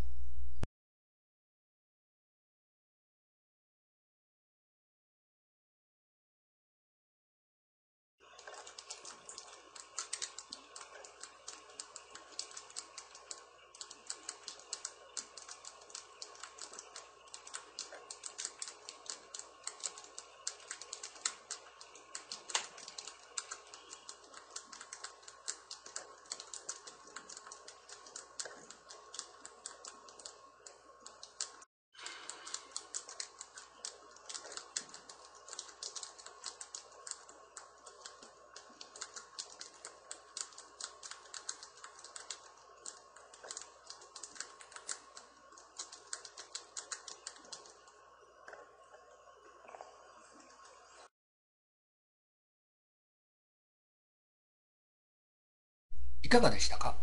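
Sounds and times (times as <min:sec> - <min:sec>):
faint steady hum: 0:00.0 - 0:00.7, 0:08.2 - 0:51.1.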